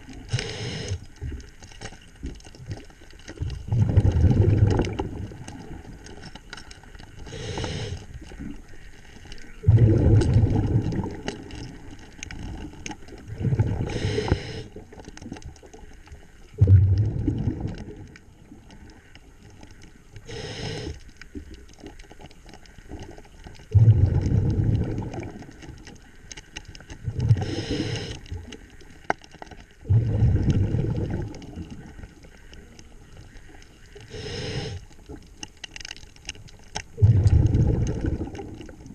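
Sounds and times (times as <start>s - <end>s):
regulator inhale hiss: 0.2s - 1.2s, 7.2s - 8.2s, 13.8s - 14.8s, 20.2s - 21.1s, 27.3s - 28.3s, 33.9s - 35.1s
exhale bubbling underwater: 3.4s - 6.2s, 9.5s - 15.0s, 16.5s - 19.0s, 23.6s - 25.9s, 27.0s - 28.5s, 29.8s - 34.8s, 36.9s - 38.9s.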